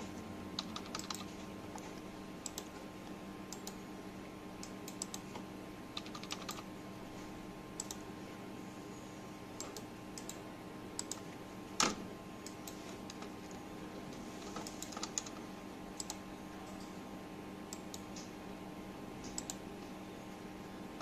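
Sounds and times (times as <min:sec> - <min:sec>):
faint electrical hum: 0:00.0 - 0:21.0
keyboard and mouse clicks: 0:00.6 - 0:02.8, 0:03.5 - 0:03.8, 0:06.0 - 0:06.6, 0:07.8 - 0:08.0, 0:11.0 - 0:11.2, 0:14.6 - 0:15.4, 0:16.0 - 0:16.8, 0:19.2 - 0:19.6.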